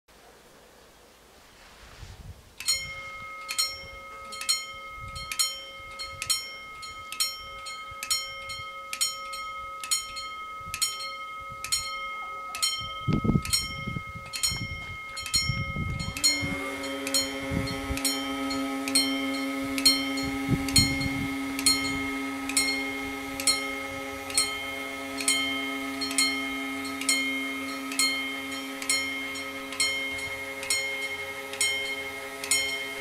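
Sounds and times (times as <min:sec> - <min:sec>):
steady low hum: 0:02.5 - 0:33.0
level crossing warning bells: 0:02.6 - 0:33.0.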